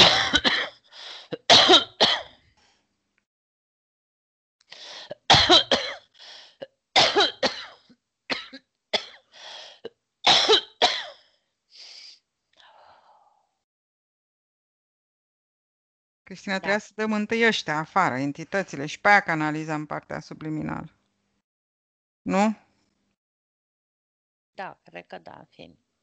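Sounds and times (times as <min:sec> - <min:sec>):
person coughing: 0:00.0 - 0:02.4, 0:05.1 - 0:06.1, 0:07.0 - 0:09.2, 0:10.2 - 0:11.2.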